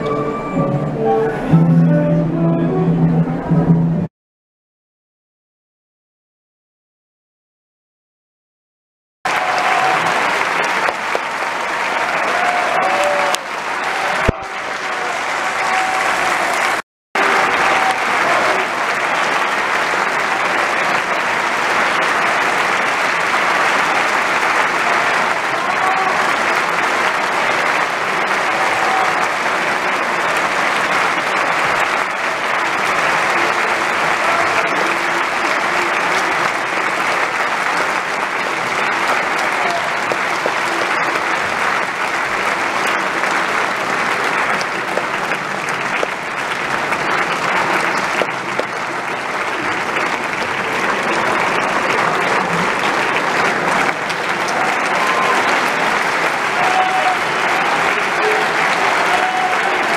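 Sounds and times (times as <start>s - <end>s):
audience applauding: 9.3s - 59.9s.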